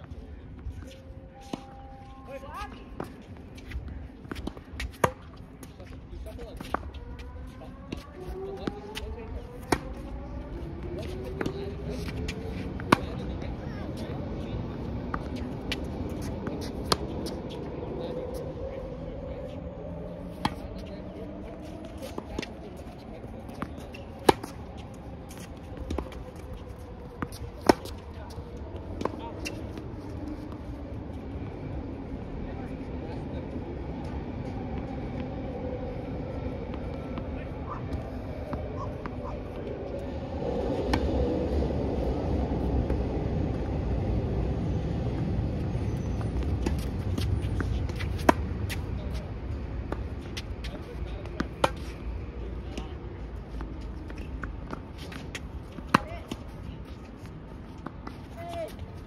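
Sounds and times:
steady low rumble: 0:00.0 - 0:59.0
tennis ball bouncing: 0:03.0 - 0:05.7, 0:09.6 - 0:09.8, 0:15.1 - 0:17.6, 0:20.3 - 0:20.9, 0:23.5 - 0:24.6, 0:27.2 - 0:28.0, 0:46.4 - 0:49.2, 0:49.8 - 0:52.0, 0:52.7 - 0:57.0.

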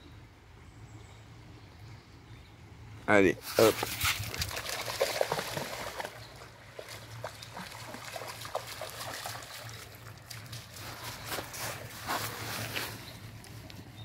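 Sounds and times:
stream trickling: 0:03.4 - 0:14.0
dog splashing through water: 0:03.6 - 0:12.5.

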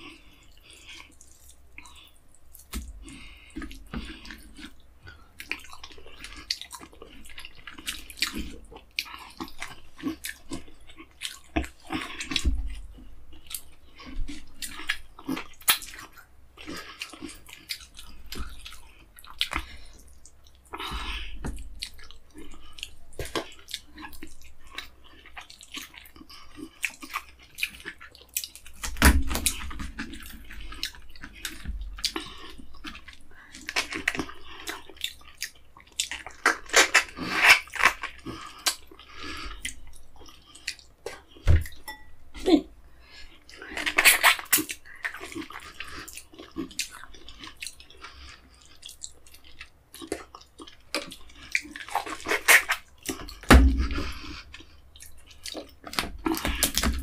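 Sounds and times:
wet chewing and lip-smacking: 0:00.0 - 0:57.0
heavier thumps: 0:53.5 - 0:54.1.

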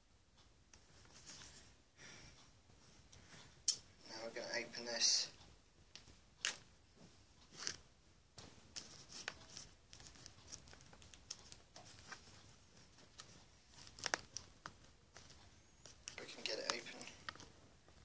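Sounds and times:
plastic wrap crackling and ripping: 0:13.0 - 0:17.5.

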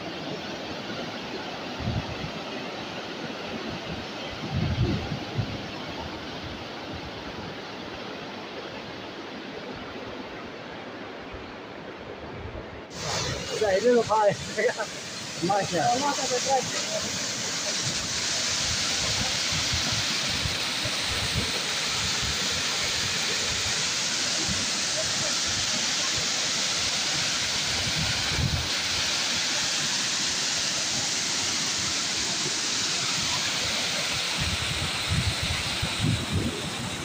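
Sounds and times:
floodwater rushing: 0:00.0 - 0:37.0
wind buffeting microphone: 0:04.4 - 0:05.7, 0:34.4 - 0:37.0.

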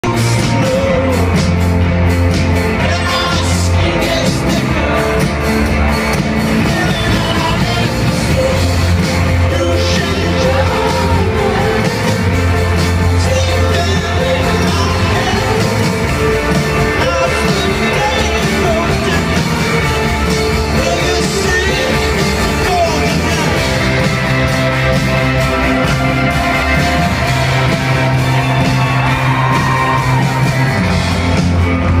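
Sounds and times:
lead singer: 0:00.0 - 0:32.0
live rock band playing: 0:00.0 - 0:32.0
shouted voices: 0:25.6 - 0:31.4.

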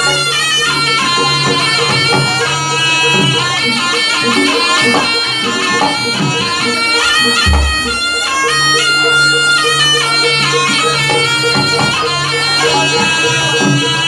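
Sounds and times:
shawm playing ornamented melody: 0:00.0 - 0:14.0
even beat: 0:05.8 - 0:09.4.

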